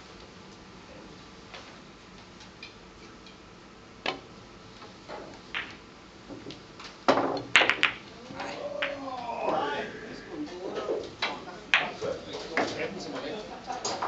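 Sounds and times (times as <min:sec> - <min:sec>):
billiard balls clacking: 0:05.0 - 0:09.8, 0:10.4 - 0:12.8.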